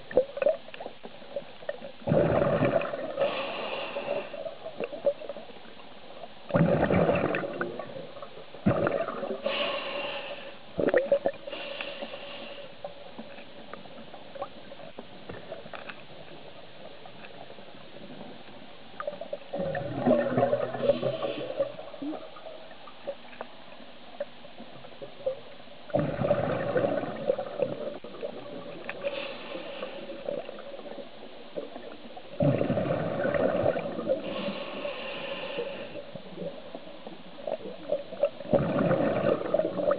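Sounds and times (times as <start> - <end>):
exhaled bubbles gurgling: 0.0 - 9.6, 10.8 - 11.6, 18.0 - 23.4, 24.2 - 39.9
regulator inhale hiss: 3.1 - 4.7, 9.4 - 10.8, 11.4 - 13.2, 20.8 - 22.0, 28.8 - 30.6, 34.1 - 36.5.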